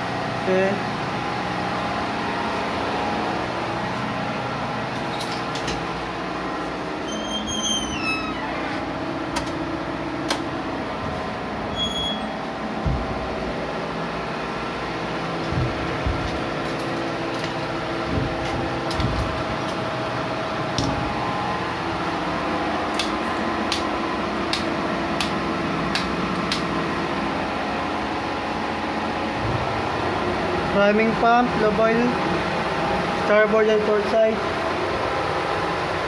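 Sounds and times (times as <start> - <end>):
diesel generator droning: 0.0 - 36.0
low knocks: 12.8 - 13.5, 15.4 - 16.7, 18.0 - 19.5.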